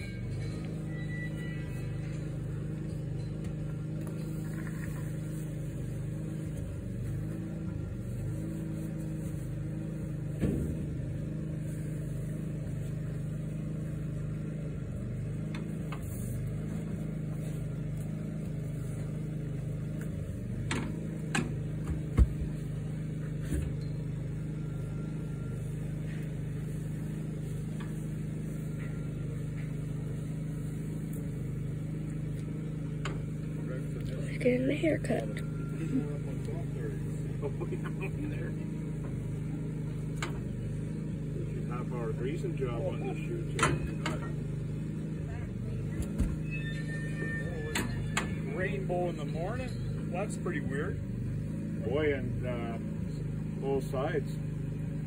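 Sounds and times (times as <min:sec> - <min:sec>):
metal clanks from cattle chute: 0:00.0 - 0:05.5, 0:19.8 - 0:24.3, 0:43.4 - 0:44.7, 0:46.0 - 0:50.4
engine idling: 0:00.0 - 0:55.0.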